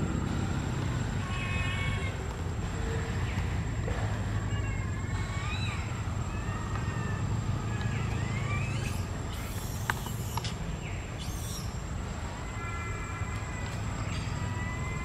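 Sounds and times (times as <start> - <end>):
high whistled calls: 5.0 - 11.9.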